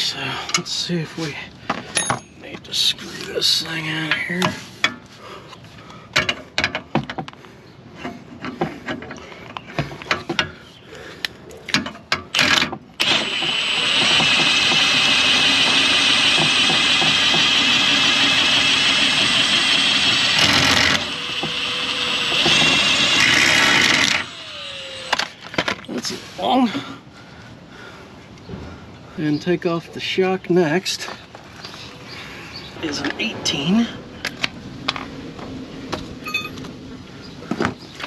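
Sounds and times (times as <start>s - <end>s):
tools clicking and clanking: 1.7s - 2.7s, 11.2s - 14.8s
impact wrench hammering: 12.4s - 25.3s.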